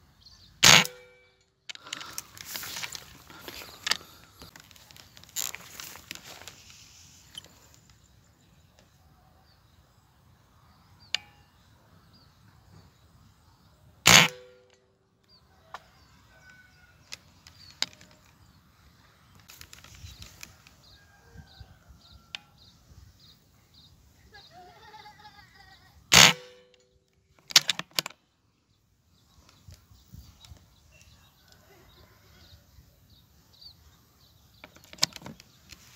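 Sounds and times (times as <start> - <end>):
faint bird chirps: 29.2 - 35.9.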